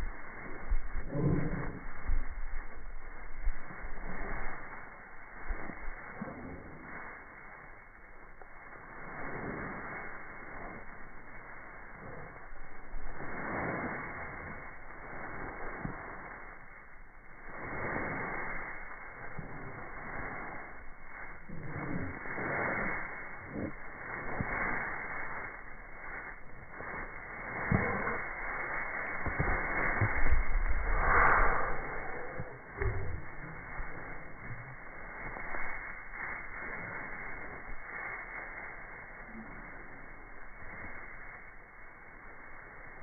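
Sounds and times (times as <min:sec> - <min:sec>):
slowed rustling hiss: 0:00.0 - 0:43.0
dull low thumps: 0:20.9 - 0:37.9.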